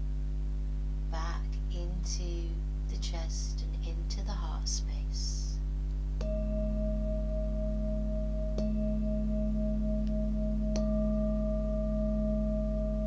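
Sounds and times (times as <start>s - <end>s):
bowls ringing tones: 6.2s - 13.0s
singing bowls struck: 6.2s - 13.0s.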